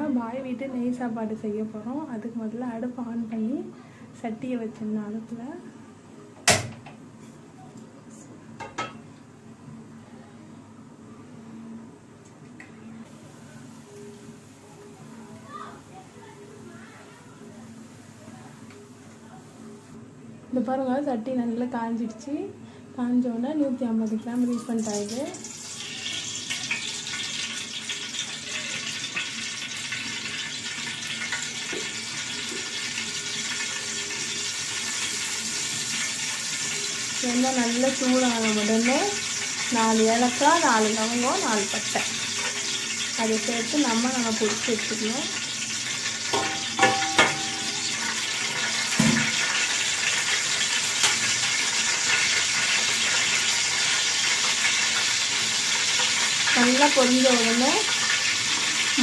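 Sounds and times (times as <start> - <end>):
oil sizzling in a pot: 13.1 - 17.1, 24.0 - 59.0.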